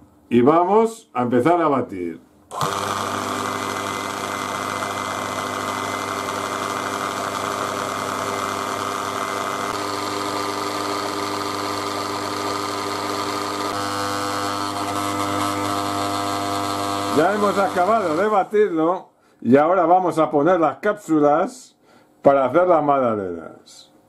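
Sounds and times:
electric stand mixer running: 0:02.5 - 0:18.6.

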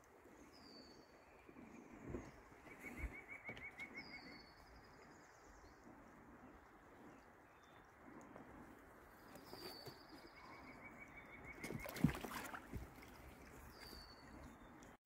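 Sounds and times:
flowing river: 0:05.9 - 0:15.0.

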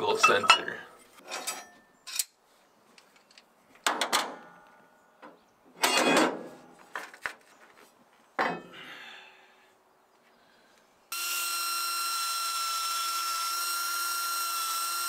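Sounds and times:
steel plate clanking and scraping: 0:00.1 - 0:02.3, 0:05.8 - 0:06.5.

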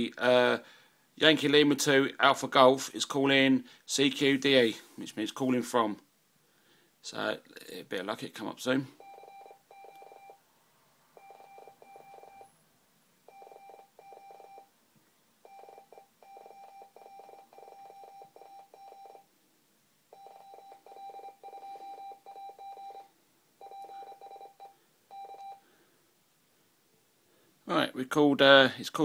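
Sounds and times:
morse code beeps: 0:09.0 - 0:10.4, 0:11.2 - 0:12.5, 0:13.3 - 0:14.7, 0:15.5 - 0:19.3, 0:20.2 - 0:25.6.

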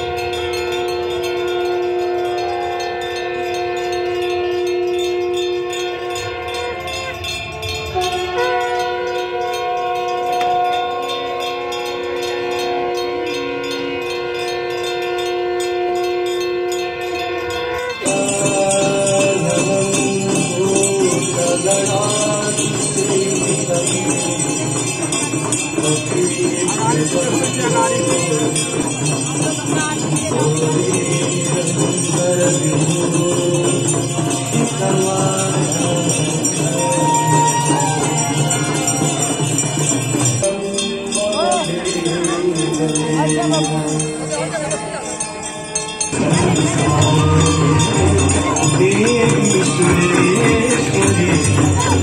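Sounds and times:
conch shells blown: 0:00.0 - 0:40.8
hand bells ringing: 0:00.0 - 0:52.0
music: 0:00.0 - 0:52.0.

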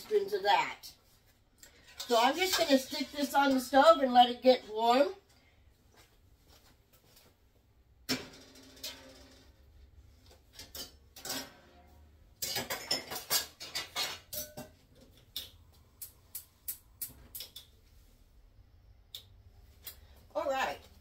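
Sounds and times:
metal pots and utensils clattering: 0:01.7 - 0:03.7, 0:10.5 - 0:15.5.

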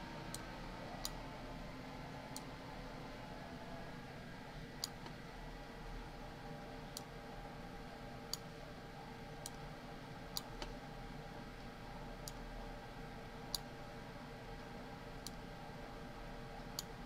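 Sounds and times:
faint electrical hum: 0:00.0 - 0:17.0
computer mouse clicking: 0:09.4 - 0:09.6, 0:12.2 - 0:12.5.

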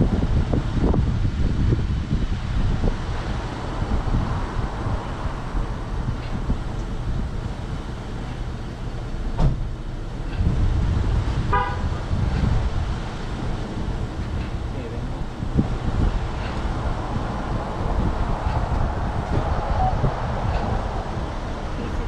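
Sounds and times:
car engine idling: 0:00.0 - 0:22.0
passing road traffic: 0:00.0 - 0:22.0
sharp knock: 0:09.4 - 0:09.7.

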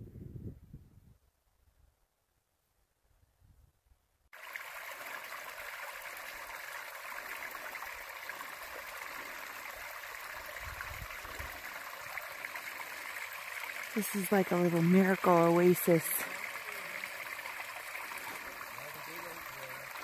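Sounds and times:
stream trickling into pool: 0:04.3 - 0:20.0.

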